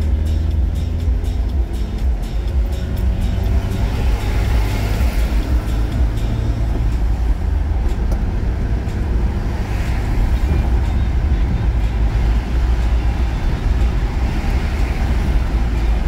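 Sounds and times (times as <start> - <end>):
car engine: 0.0 - 16.0
car road and tyre noise: 0.0 - 16.0.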